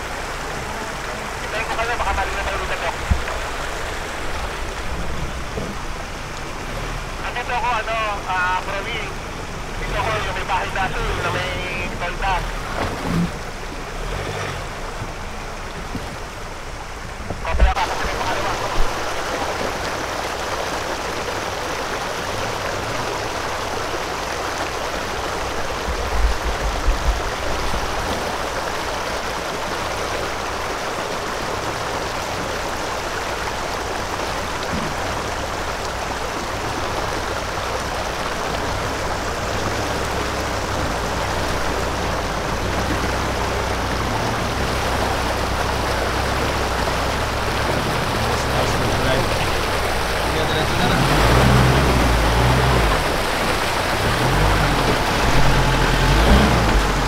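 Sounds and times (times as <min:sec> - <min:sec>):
river water rushing: 0:00.0 - 0:57.0
vehicle engine hum: 0:00.0 - 0:57.0.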